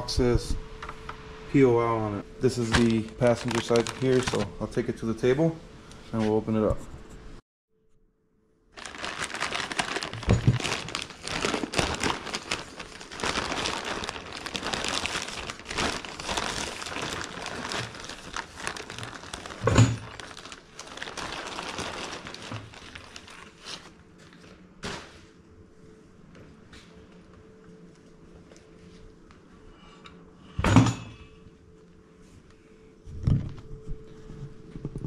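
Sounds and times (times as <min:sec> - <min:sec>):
plastic bag crinkling: 0:02.4 - 0:04.8, 0:08.8 - 0:23.9.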